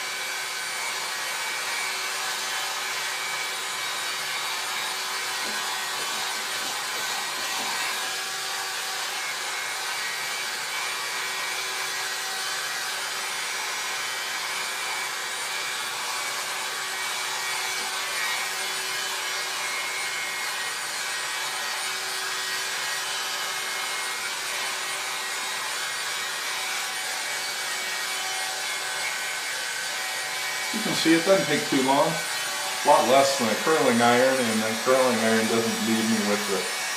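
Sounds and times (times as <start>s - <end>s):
hot-air brush fan hissing: 1.9s - 9.1s, 30.5s - 36.9s.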